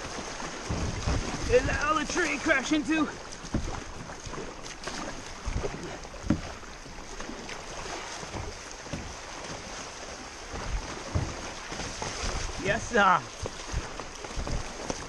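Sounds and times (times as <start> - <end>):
dull low thumps: 0.0 - 1.8, 12.4 - 15.0
stream water rushing: 0.0 - 15.0.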